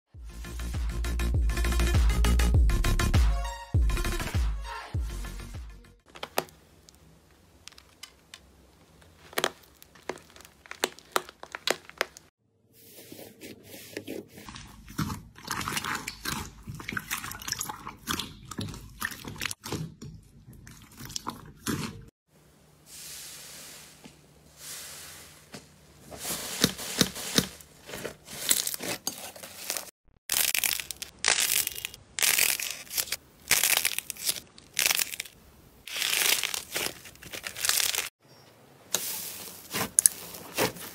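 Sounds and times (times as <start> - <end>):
slime crackling and squishing: 6.1 - 12.3, 26.3 - 38.2, 39.0 - 40.9.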